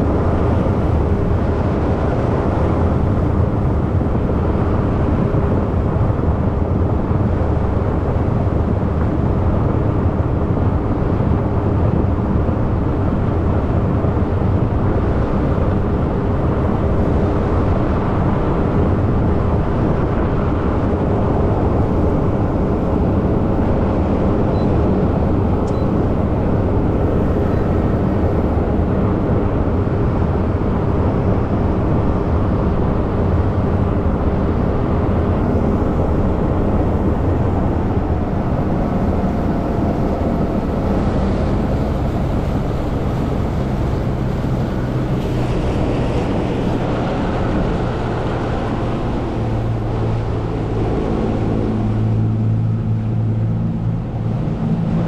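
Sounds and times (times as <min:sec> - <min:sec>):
water rushing against hull: 0:00.1 - 0:55.0.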